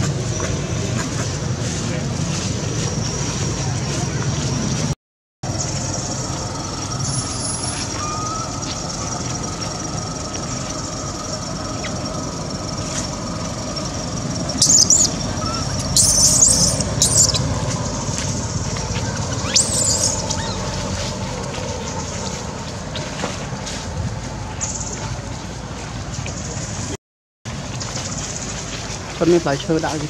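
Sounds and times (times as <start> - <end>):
outdoor background noise: 0.0 - 30.0
baby monkey squealing: 7.1 - 9.4, 13.8 - 17.6, 18.9 - 21.2.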